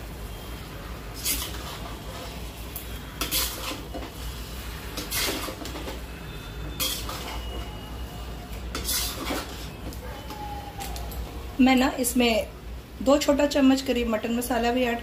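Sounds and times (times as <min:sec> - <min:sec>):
metal spatula scraping a pan: 0:01.2 - 0:07.8, 0:08.7 - 0:09.9.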